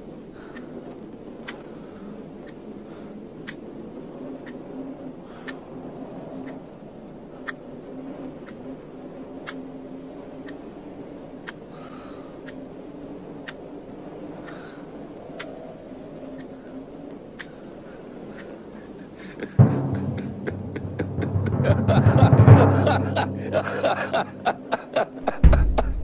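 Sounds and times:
low steady hum: 18.8 - 26.0.

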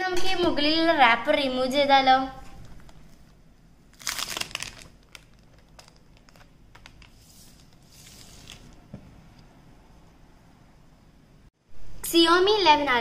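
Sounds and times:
plastic shrink-wrap crinkling: 2.6 - 8.8.

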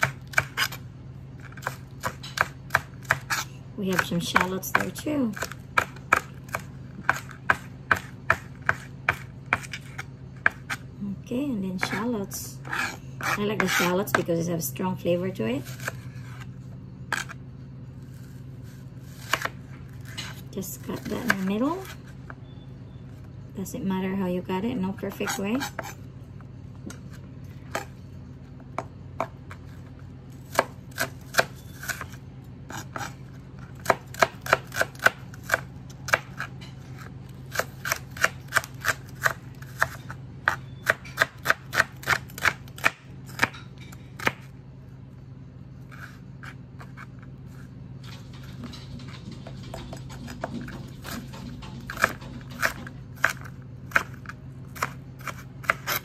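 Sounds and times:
knife chopping on cutting board: 0.0 - 0.8, 1.4 - 10.9, 11.8 - 14.3, 19.2 - 22.0, 30.5 - 33.2, 33.8 - 44.5, 48.7 - 56.0.

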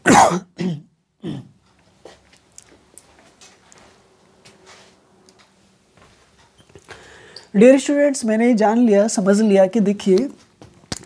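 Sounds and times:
man clearing throat: 0.0 - 1.6.

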